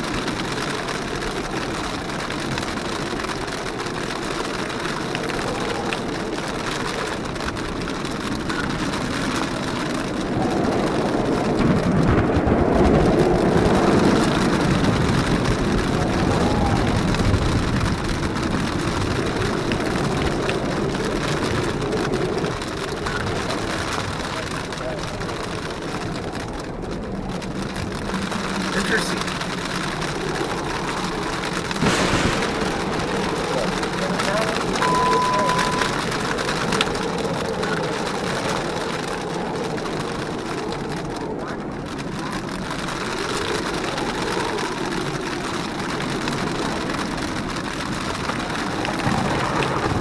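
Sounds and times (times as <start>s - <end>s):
wind and rain rushing: 0.0s - 50.0s
car engine running: 17.2s - 41.4s.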